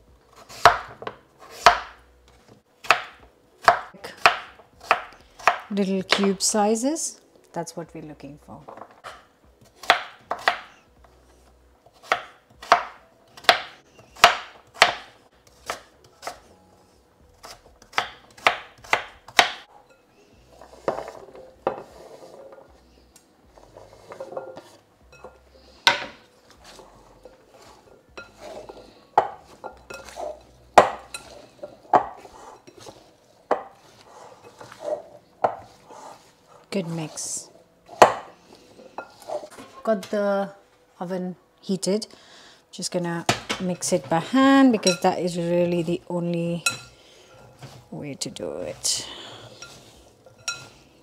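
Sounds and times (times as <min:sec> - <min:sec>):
knife chopping on board: 0:00.3 - 0:02.0, 0:02.8 - 0:06.4, 0:09.0 - 0:10.7, 0:12.0 - 0:16.4, 0:17.4 - 0:19.7, 0:29.2 - 0:31.0, 0:34.6 - 0:36.1, 0:37.9 - 0:38.3
knife scraping board: 0:20.5 - 0:22.6, 0:23.6 - 0:24.8, 0:26.0 - 0:30.4, 0:31.2 - 0:39.9.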